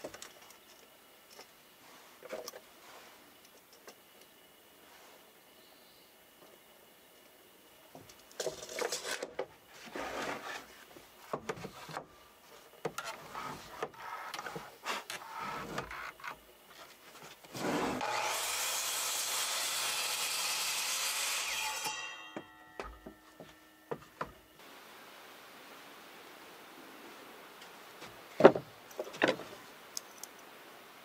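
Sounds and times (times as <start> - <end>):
wood scraping and knocking: 8.4 - 12.1, 22.4 - 24.4, 28.0 - 29.6
power tool on wood: 17.6 - 22.4.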